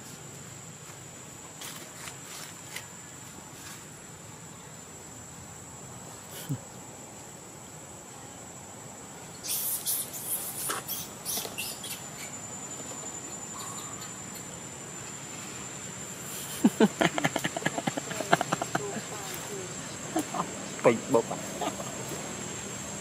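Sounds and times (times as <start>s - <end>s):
leaves and twigs rustling: 0.0s - 4.1s, 9.6s - 22.9s
insects droning: 0.0s - 23.0s.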